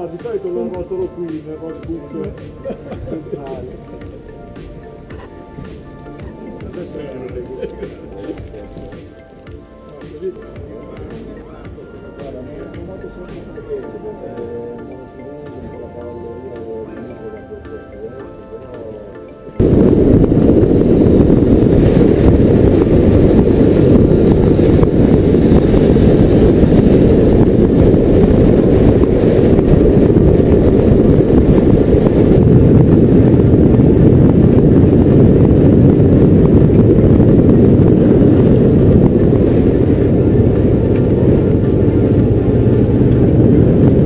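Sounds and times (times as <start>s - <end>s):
motorcycle engine running: 19.6s - 44.0s
wind rumble on microphone: 19.6s - 44.0s.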